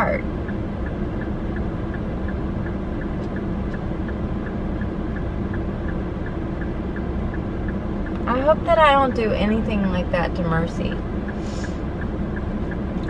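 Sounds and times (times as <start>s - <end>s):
car engine and cabin hum: 0.0s - 13.0s
turn signal ticking: 0.0s - 13.0s.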